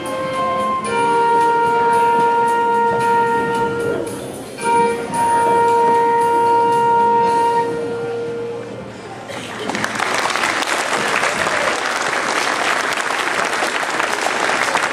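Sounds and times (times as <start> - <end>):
flute and clarinet duet: 0.0 - 8.9.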